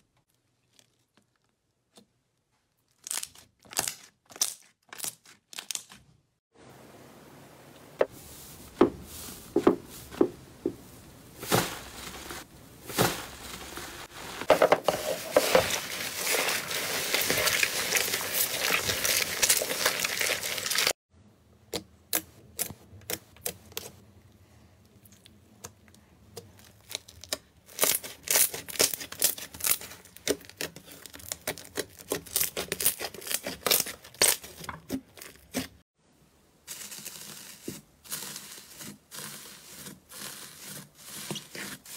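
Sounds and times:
slime squishing and crackling: 15.0 - 21.0, 26.5 - 35.8.

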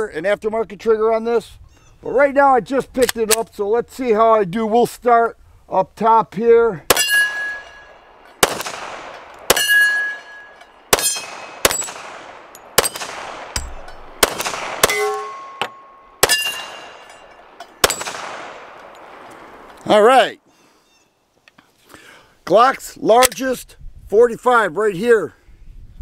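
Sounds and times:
steel plate targets ringing: 6.9 - 8.5, 9.1 - 18.2
pistol shots: 6.9 - 19.6.

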